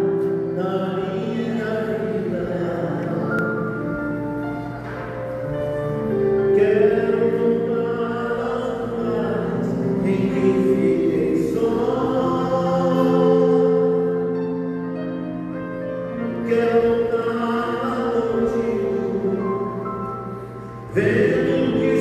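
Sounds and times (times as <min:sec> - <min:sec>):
man singing a hymn: 0:00.0 - 0:22.0
congregation singing: 0:04.8 - 0:14.6, 0:16.1 - 0:22.0.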